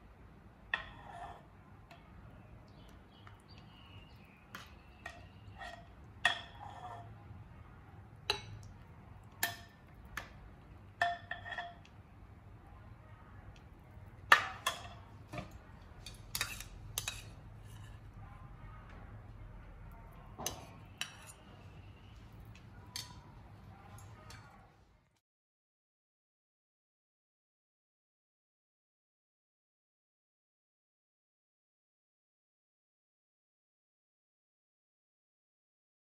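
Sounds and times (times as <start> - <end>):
faint low hum: 0.0 - 25.2
ladle clinking against ceramic bowl: 4.2 - 7.1, 8.3 - 8.7, 11.0 - 11.9, 20.4 - 21.6.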